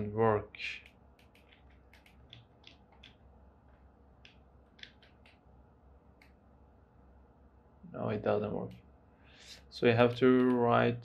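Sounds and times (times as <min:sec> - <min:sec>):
low room hum: 0:00.0 - 0:11.0
keyboard and mouse clicks: 0:00.8 - 0:03.3, 0:04.2 - 0:05.5, 0:10.0 - 0:10.7.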